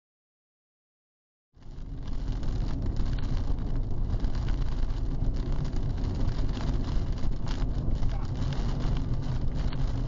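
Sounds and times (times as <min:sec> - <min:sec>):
car road and engine rumble: 0:01.6 - 0:10.0
rain spattering on windshield: 0:01.6 - 0:10.0
wind noise: 0:01.6 - 0:10.0.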